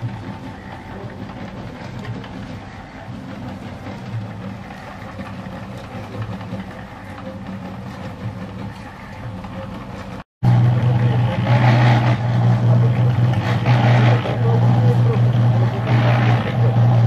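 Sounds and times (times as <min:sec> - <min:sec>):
cement mixer motor humming: 0:00.0 - 0:17.0
rough rattling noise: 0:00.0 - 0:17.0.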